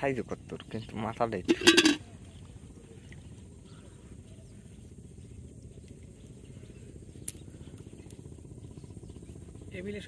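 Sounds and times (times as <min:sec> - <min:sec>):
faint water and net noises: 0:00.0 - 0:07.7
steady low rumble: 0:00.0 - 0:10.0.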